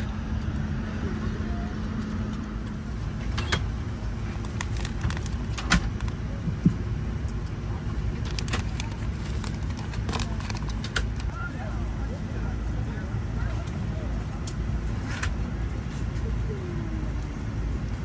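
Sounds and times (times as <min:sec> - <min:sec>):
airliner cabin rumble: 0:00.0 - 0:18.0
plastic packet crinkling: 0:04.2 - 0:06.2, 0:08.2 - 0:11.0.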